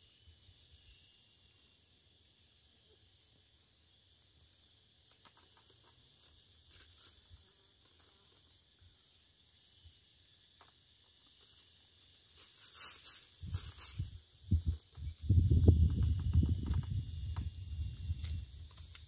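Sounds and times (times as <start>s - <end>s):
faint high hiss: 5.2s - 14.9s.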